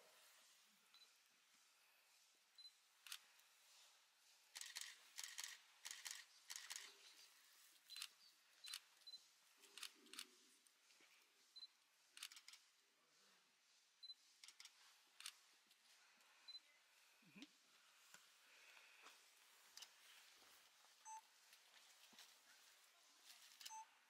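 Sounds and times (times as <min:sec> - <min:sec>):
autofocus beeps: 0:21.0 - 0:21.2.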